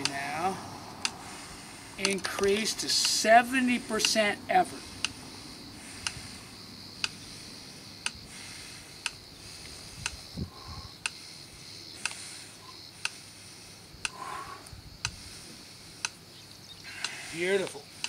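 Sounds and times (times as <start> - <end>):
clock ticking: 2.0 - 3.2.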